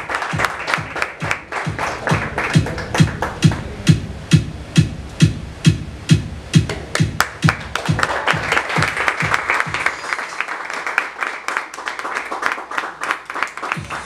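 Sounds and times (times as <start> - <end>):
audience clapping: 0.0 - 3.8, 6.9 - 14.0
background music with drum beat: 0.0 - 10.1, 13.7 - 14.0.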